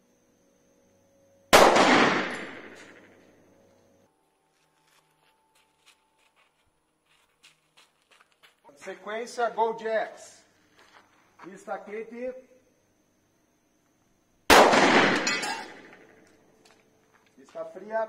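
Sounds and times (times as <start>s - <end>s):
pistol shot with echo: 1.5s - 3.1s, 14.5s - 16.0s.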